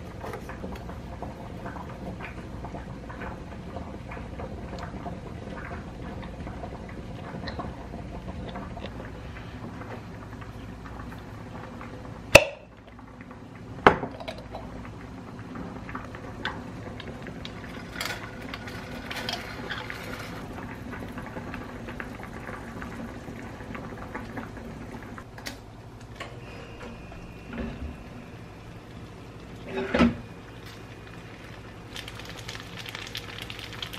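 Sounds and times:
thick sauce pouring into pan: 30.7s - 33.9s.

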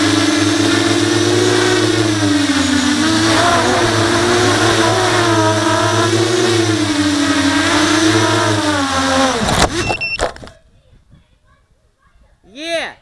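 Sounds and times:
quadcopter motors buzzing: 0.0s - 10.2s.

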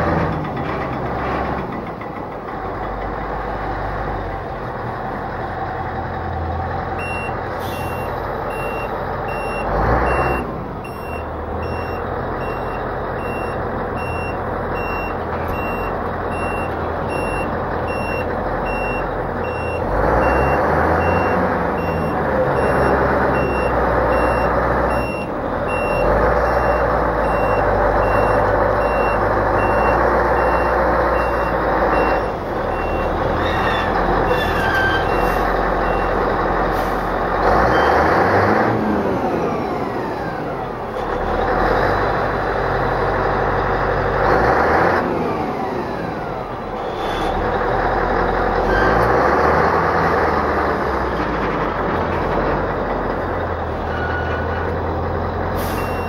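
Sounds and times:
diesel truck engine running: 0.0s - 56.0s
reversing alarm beeping: 7.0s - 36.2s, 55.6s - 56.0s.

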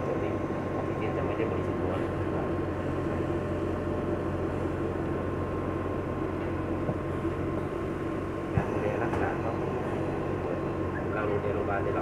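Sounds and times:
faint constant whine: 0.0s - 12.0s
oxygen concentrator compressor hum: 0.0s - 12.0s.

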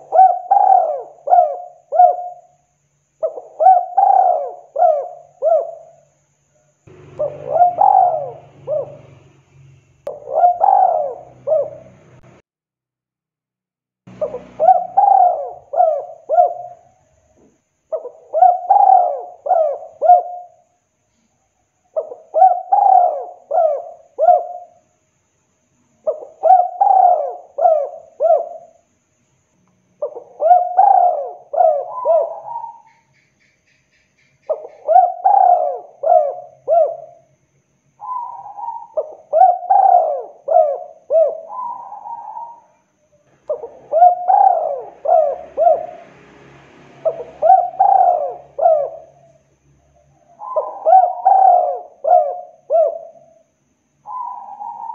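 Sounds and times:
dove cooing: 0.0s - 2.6s, 3.2s - 6.0s, 6.9s - 9.3s, 10.1s - 12.2s, 14.2s - 17.0s, 17.9s - 20.6s, 22.0s - 24.8s, 26.0s - 28.8s, 30.0s - 33.0s, 34.5s - 37.3s, 38.0s - 46.2s, 47.0s - 49.4s, 50.0s - 54.9s.

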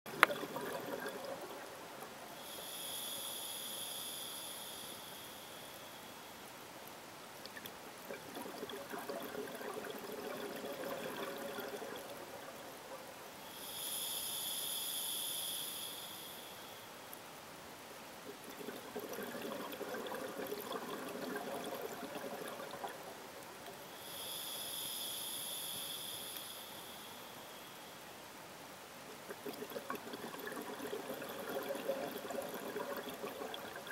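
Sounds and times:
bubbling underwater exhalation: 0.1s - 1.6s, 8.1s - 12.2s, 29.3s - 33.9s
regulator hissing inhalation: 2.4s - 6.2s, 13.5s - 16.9s, 24.0s - 27.9s.

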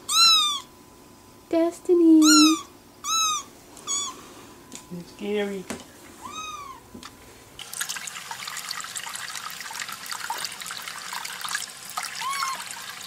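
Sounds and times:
kitten meowing: 0.0s - 0.7s, 2.2s - 4.2s, 6.2s - 6.8s, 12.1s - 12.7s.

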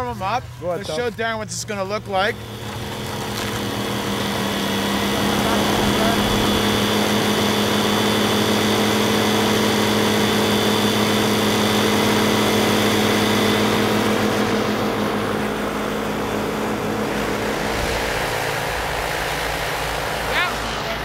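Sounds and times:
large machine humming: 0.0s - 21.0s.

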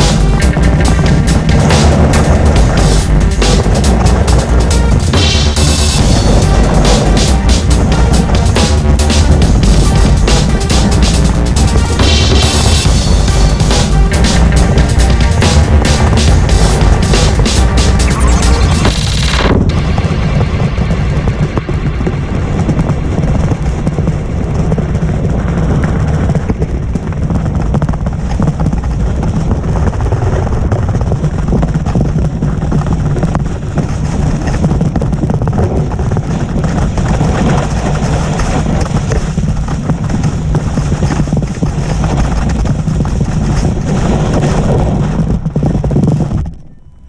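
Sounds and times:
skis scraping on snow: 0.0s - 46.7s
wind buffeting microphone: 0.0s - 47.0s.

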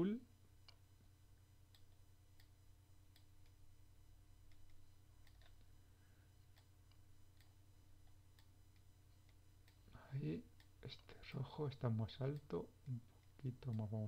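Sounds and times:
low steady hum: 0.0s - 14.0s
computer mouse clicks: 4.5s - 5.7s.

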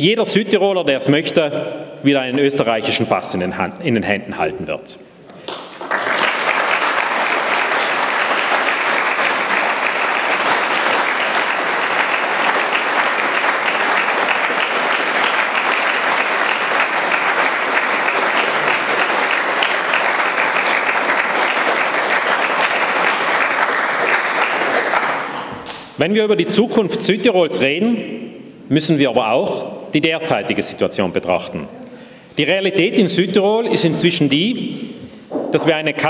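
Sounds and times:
crowd applauding: 5.4s - 25.7s.

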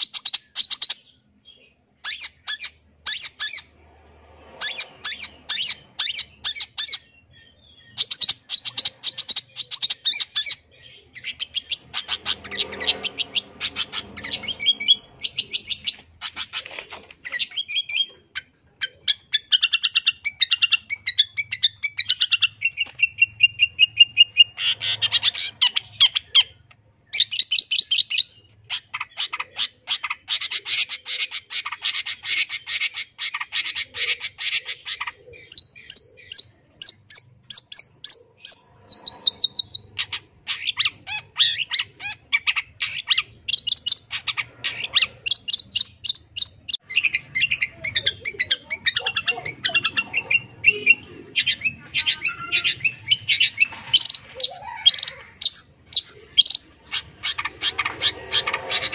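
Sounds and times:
shrike singing varied song: 0.0s - 58.9s.

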